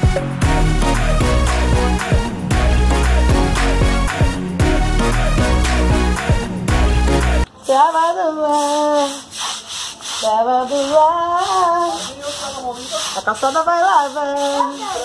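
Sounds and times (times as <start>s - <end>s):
broom scrubbing ground: 7.1s - 15.0s.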